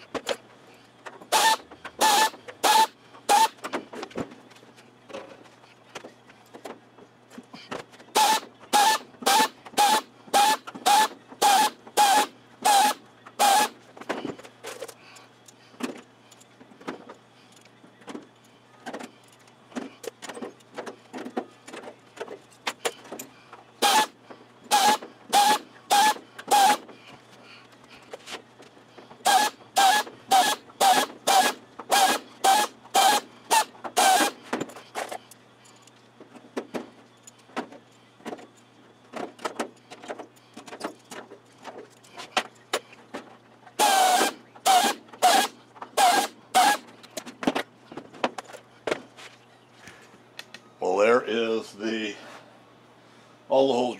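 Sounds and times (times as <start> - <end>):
pneumatic air drill whirring: 1.2 - 3.8, 7.5 - 13.8, 22.7 - 27.0, 29.1 - 35.4, 43.8 - 47.2.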